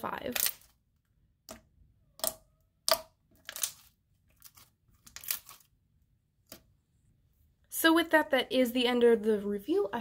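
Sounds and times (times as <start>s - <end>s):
slime squelching and crackling: 0.0s - 6.7s.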